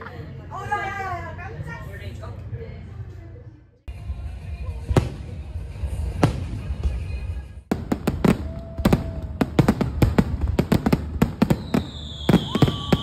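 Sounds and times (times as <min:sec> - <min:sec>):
fireworks bangs and crackles: 0:04.8 - 0:13.0
firework whistles: 0:11.3 - 0:13.0.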